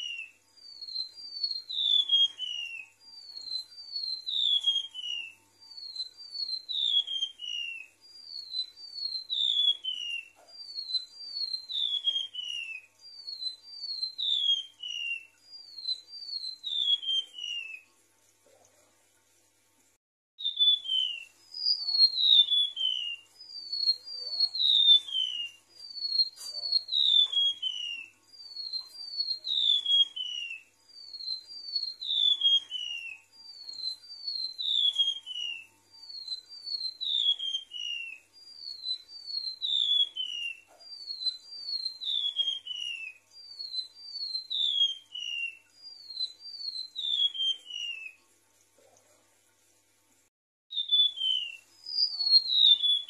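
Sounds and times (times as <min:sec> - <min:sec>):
bird whistling downward notes: 0:00.0 - 0:17.9, 0:20.4 - 0:48.2, 0:50.7 - 0:53.0.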